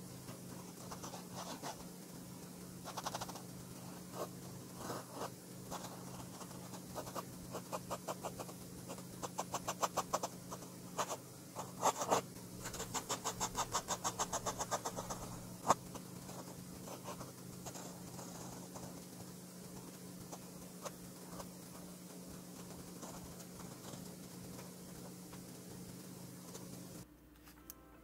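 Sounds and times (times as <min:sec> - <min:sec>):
pen scratching on paper: 0:00.6 - 0:01.9, 0:02.8 - 0:26.0.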